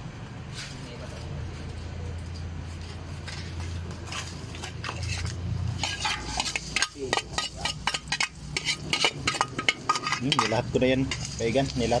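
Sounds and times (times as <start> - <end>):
metal utensil scraping a pan: 4.1 - 12.0.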